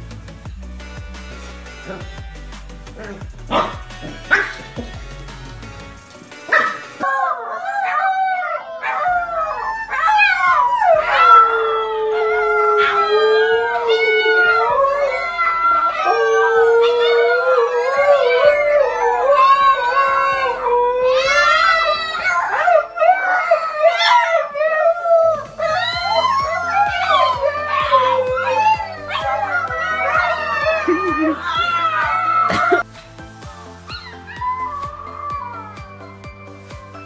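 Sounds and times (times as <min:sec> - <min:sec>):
background music: 0:00.0 - 0:37.0
dogs howling: 0:06.5 - 0:32.8, 0:33.9 - 0:36.4.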